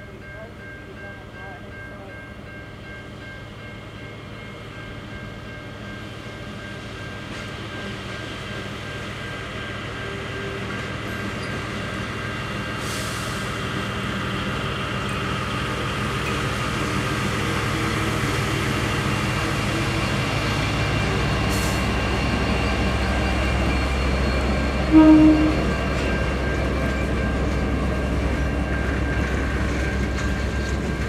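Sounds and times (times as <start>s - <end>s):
diesel locomotive engine hum: 0.0s - 31.0s
passing train hiss: 7.4s - 26.7s.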